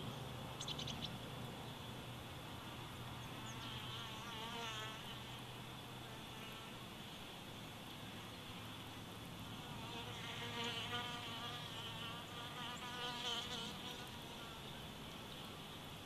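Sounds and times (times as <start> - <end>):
steady background hiss: 0.0 - 16.0
flying insect buzzing: 3.4 - 6.9, 9.4 - 14.8.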